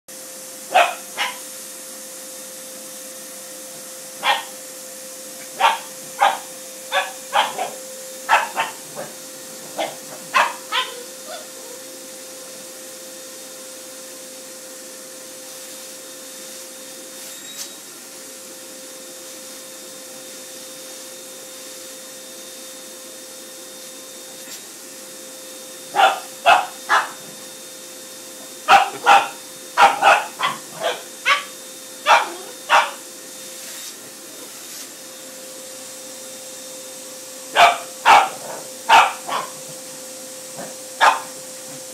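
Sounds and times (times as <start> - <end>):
vacuum cleaner humming: 0.1 - 41.9
dog barking: 0.7 - 1.5, 4.2 - 4.6, 5.4 - 11.8, 25.9 - 27.3, 28.5 - 33.0, 37.5 - 39.7, 40.6 - 41.4.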